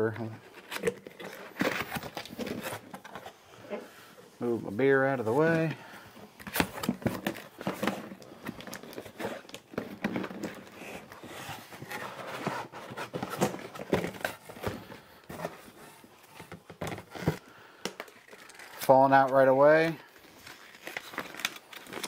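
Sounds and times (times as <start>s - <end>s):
cardboard rustling and scraping: 0.2s - 4.6s, 6.3s - 17.5s.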